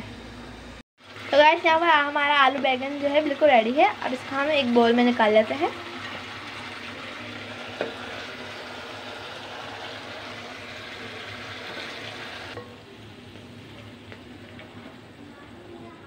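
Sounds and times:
curry sizzling in a pan: 1.0 - 16.0.

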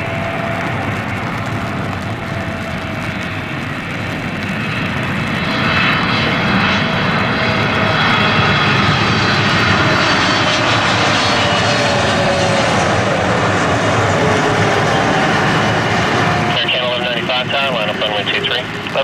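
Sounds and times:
jet engines on approach: 0.0 - 19.0.

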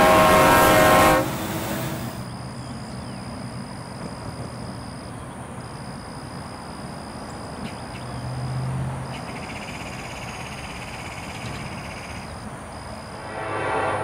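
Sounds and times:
background rumble: 12.9 - 14.0
low hum: 12.9 - 14.0.

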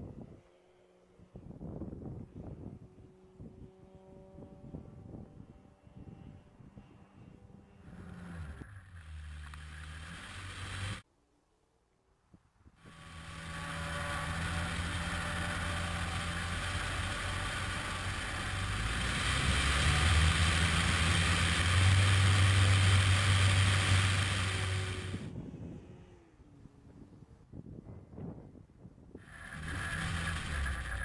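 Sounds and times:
electric motor and propeller hum: 0.0 - 11.0, 12.8 - 28.4, 29.1 - 31.0
wind rush: 18.6 - 31.0.

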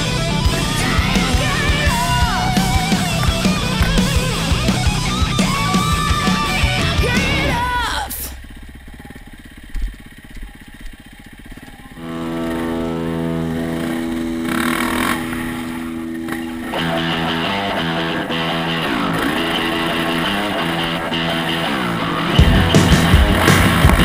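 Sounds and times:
guitar-driven music: 0.0 - 8.6, 12.0 - 24.0
dirt bike engine running: 0.0 - 24.0.

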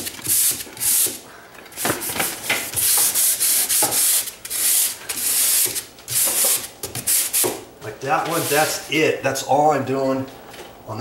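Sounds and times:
sandpaper rubbing on drywall: 0.0 - 1.2, 1.8 - 7.6, 8.2 - 8.9.

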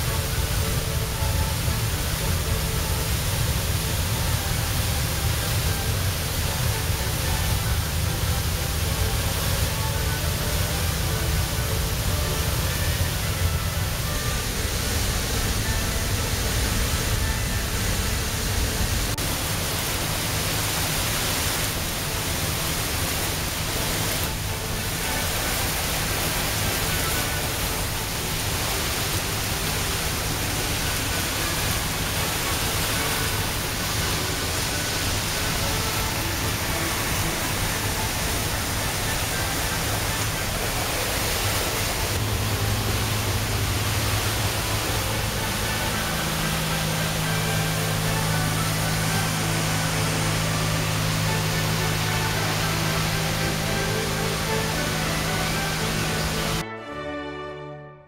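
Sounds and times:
water rushing and churning: 0.0 - 56.7.

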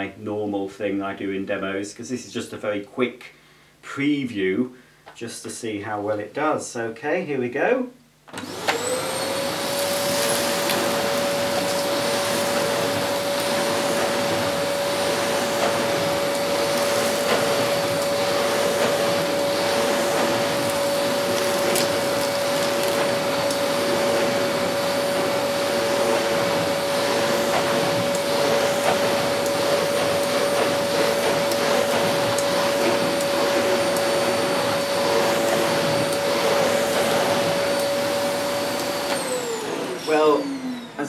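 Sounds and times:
vacuum cleaner running: 8.3 - 41.0
vacuum nozzle on carpet: 8.3 - 41.0.

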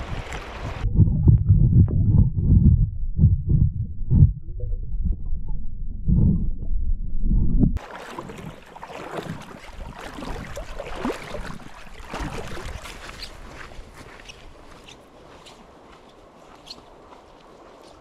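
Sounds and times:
muffled underwater creek rumble: 0.0 - 13.1
shallow water splashing and trickling: 7.8 - 14.5.

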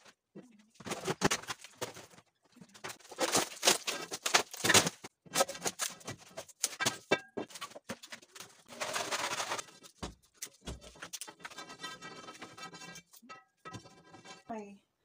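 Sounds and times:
crumbling wood pieces clattering: 0.8 - 14.4
metal bar scraping plywood: 10.6 - 14.5.

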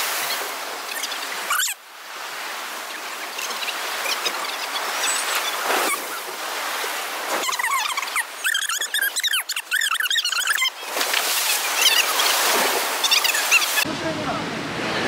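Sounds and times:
sea surf against dock: 0.0 - 15.0.

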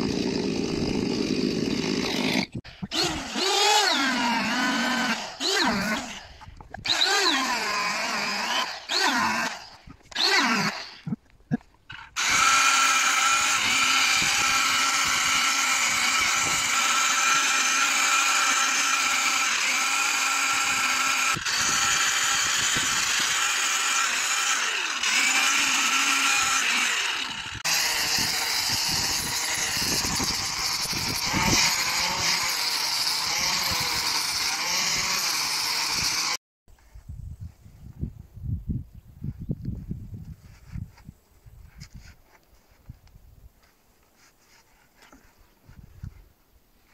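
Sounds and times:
rotary tool revving on wood: 0.0 - 11.1, 11.9 - 36.4
angle grinder grinding wood: 0.0 - 36.4.

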